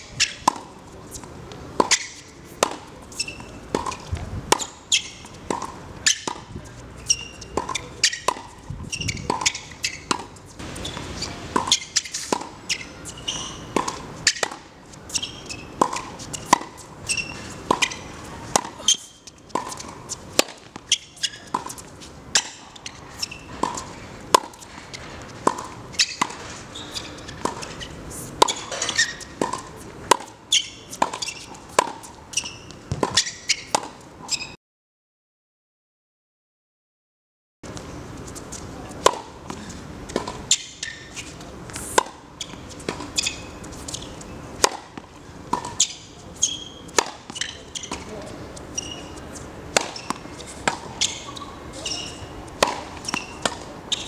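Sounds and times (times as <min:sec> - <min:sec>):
tennis balls bouncing on court: 0:00.0 - 0:34.0, 0:38.5 - 0:54.0
tennis balls popping off rackets: 0:00.0 - 0:34.0, 0:37.7 - 0:54.0.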